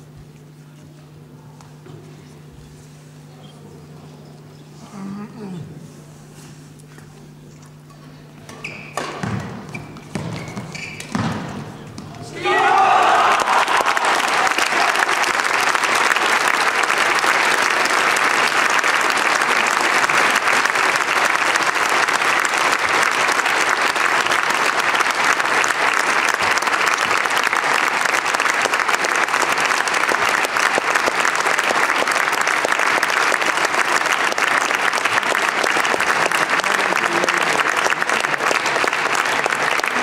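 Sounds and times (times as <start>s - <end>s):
audience applauding: 12.4s - 40.0s.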